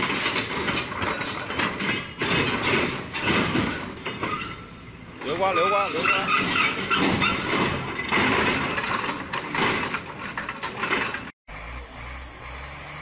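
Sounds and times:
excavator tracks clanking: 0:00.0 - 0:11.4
low diesel engine hum: 0:10.0 - 0:13.0.

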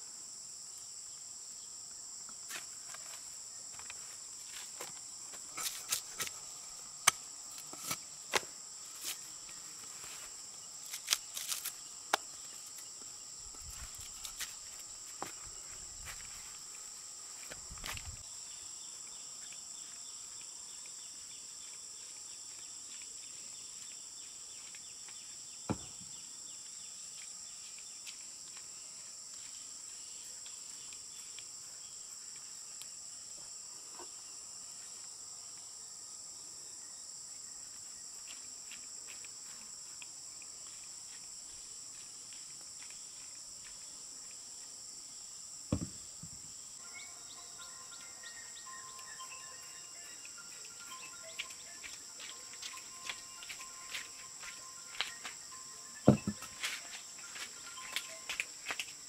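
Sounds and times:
insect chorus drone: 0:00.0 - 0:59.0
sharp knocks: 0:25.7 - 0:26.0, 0:45.7 - 0:46.4, 0:56.1 - 0:56.4.

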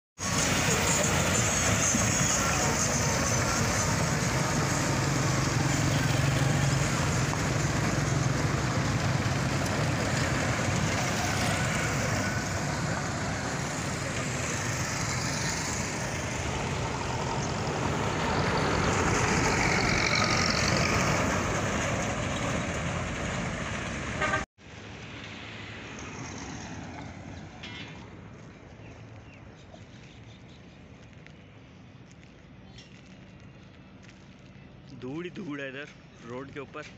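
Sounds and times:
diesel tractor engines humming: 0:00.2 - 0:24.4
distant traffic: 0:00.2 - 0:36.9
road traffic: 0:00.2 - 0:36.9.

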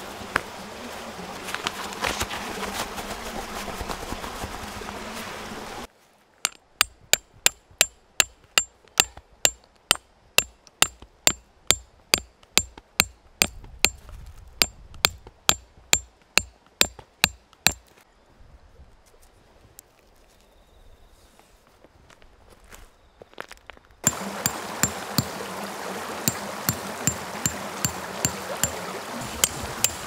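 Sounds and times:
hammer striking metal tent stake: 0:06.4 - 0:14.0, 0:14.6 - 0:17.8, 0:26.3 - 0:28.8, 0:29.4 - 0:30.0
outdoor hiss: 0:24.0 - 0:30.0.

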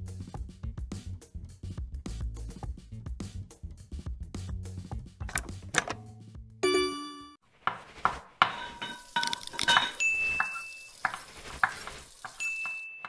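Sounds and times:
held high ding: 0:06.6 - 0:07.4, 0:09.8 - 0:10.9, 0:12.4 - 0:13.0
ringing bell-like chime: 0:06.6 - 0:07.4, 0:12.4 - 0:13.0.

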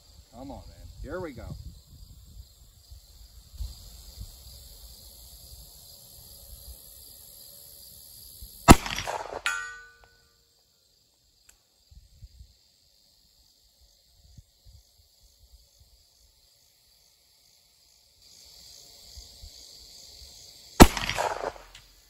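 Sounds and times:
crickets chirping: 0:00.0 - 0:22.0
revolver gunshot: 0:08.7 - 0:10.0, 0:20.8 - 0:21.8
bullet clanging on steel target: 0:08.9 - 0:10.2.

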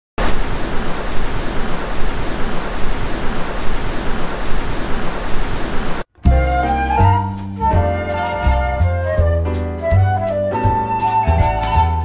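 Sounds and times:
television static hiss: 0:00.2 - 0:06.1.

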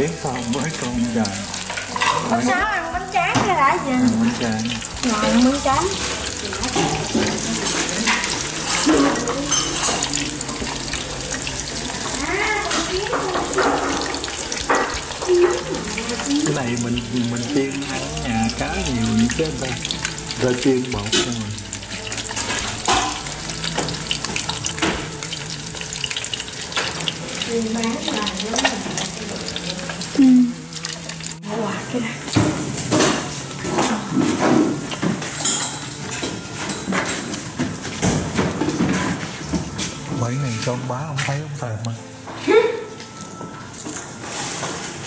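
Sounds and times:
fish deep-frying in hot oil: 0:00.0 - 0:42.0, 0:42.8 - 0:45.0
utensils clinking on metal: 0:04.1 - 0:25.2, 0:32.8 - 0:39.2.

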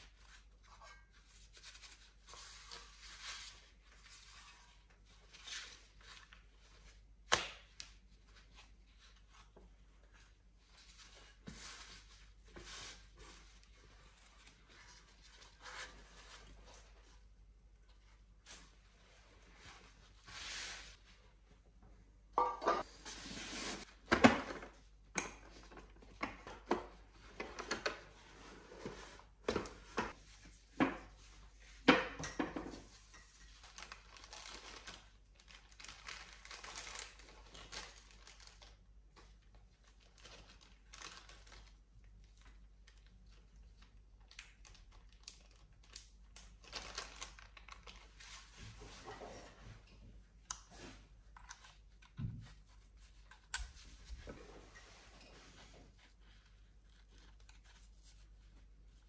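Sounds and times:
plastic bags crinkling: 0:33.5 - 0:38.9, 0:39.9 - 0:41.8, 0:42.4 - 0:48.3.

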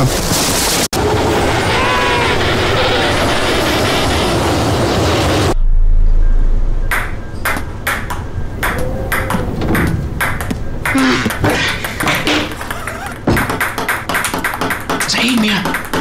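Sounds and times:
short low rumble: 0:05.6 - 0:07.4.

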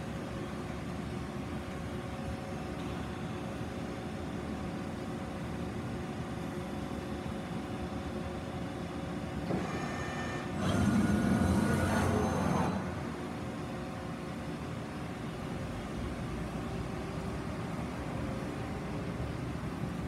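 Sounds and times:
machine hum: 0:09.4 - 0:15.2
brief machine whine: 0:09.5 - 0:13.4.

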